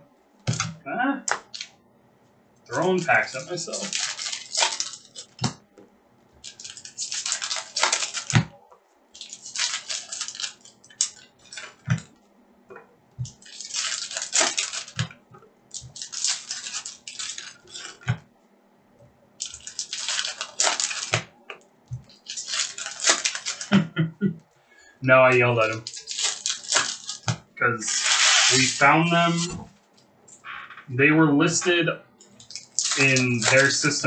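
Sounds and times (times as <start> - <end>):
foil wrappers tearing and crinkling: 1.4 - 1.7, 2.7 - 5.6, 6.4 - 8.5, 9.2 - 12.1, 13.2 - 18.1, 19.4 - 21.3, 22.0 - 23.8, 25.4 - 29.5, 32.4 - 34.0.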